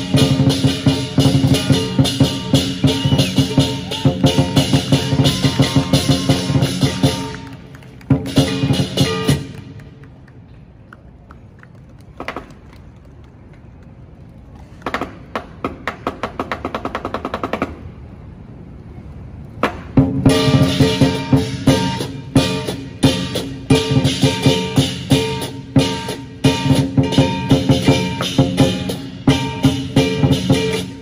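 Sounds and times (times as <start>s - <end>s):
drum and cymbals beat: 0.0s - 7.5s, 8.1s - 9.5s, 20.0s - 31.0s.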